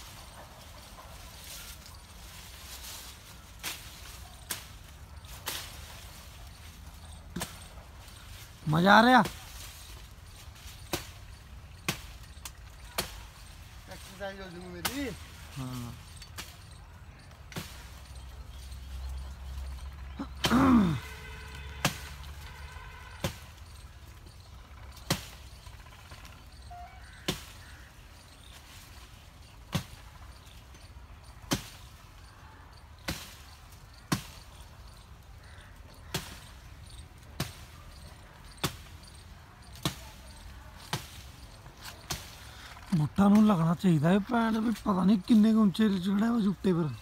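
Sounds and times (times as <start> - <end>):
blade chopping tree branches: 0.1 - 32.3, 33.0 - 45.4.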